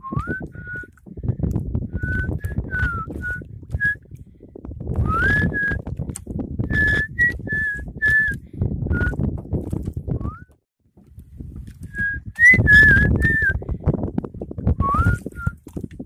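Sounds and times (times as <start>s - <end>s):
person whistling short notes: 0.0s - 1.0s, 5.0s - 5.8s, 6.7s - 9.2s, 10.2s - 10.6s, 11.9s - 13.6s, 14.8s - 15.6s
wind buffeting microphone: 0.0s - 16.0s.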